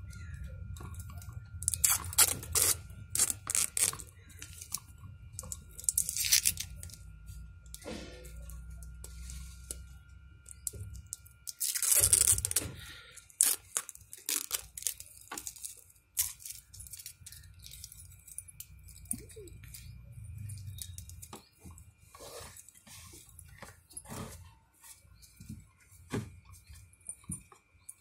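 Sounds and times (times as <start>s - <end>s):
plastic film crinkling and tearing: 1.6s - 4.8s, 5.4s - 7.0s, 10.6s - 18.0s.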